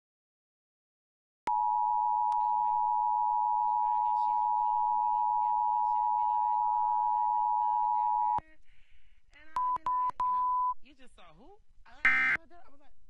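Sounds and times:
two-tone alert alarm: 0:01.5 - 0:08.4, 0:12.0 - 0:12.4
faint television voices: 0:02.4 - 0:13.0.

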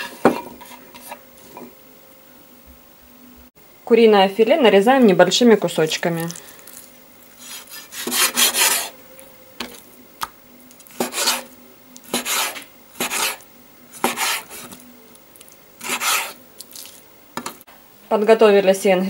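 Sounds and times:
knife cutting meat on board: 0:14.0 - 0:14.8.

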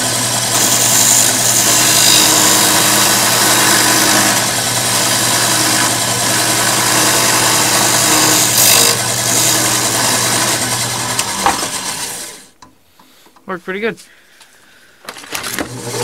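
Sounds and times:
drill press motor hum: 0:00.0 - 0:12.5.

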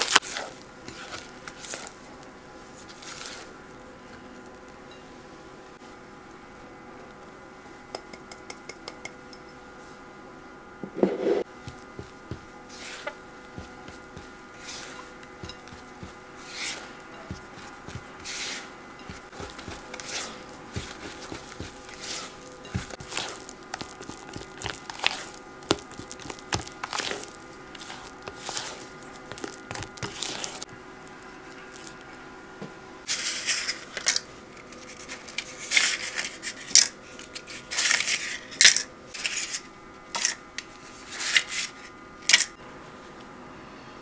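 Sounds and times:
spatula scraping glass bowl: 0:13.9 - 0:30.6.

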